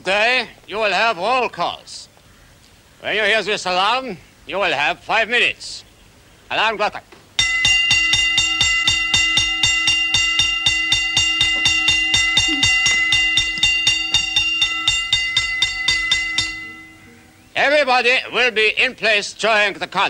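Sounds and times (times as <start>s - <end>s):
mechanical alarm bell ringing: 7.4s - 17.4s.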